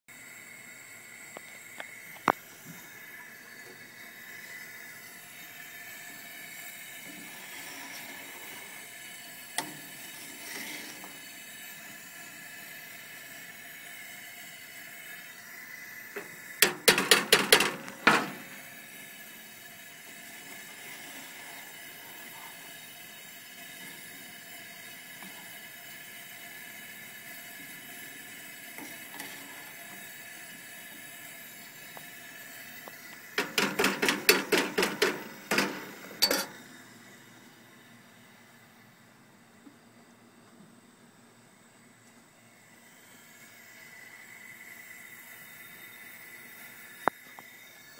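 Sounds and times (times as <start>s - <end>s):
camp stove burner hissing: 0.1s - 47.9s
metal rod knocking in can: 16.6s - 18.4s, 33.4s - 36.5s.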